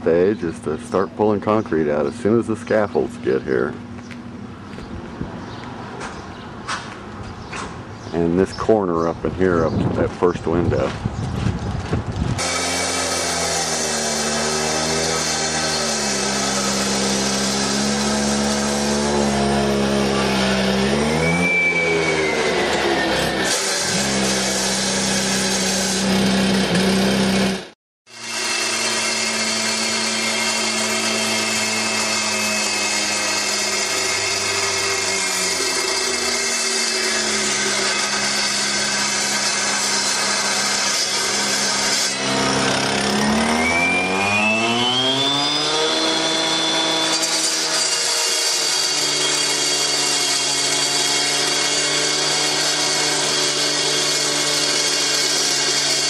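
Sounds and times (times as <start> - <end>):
concrete saw cutting into wall: 12.4 - 56.0.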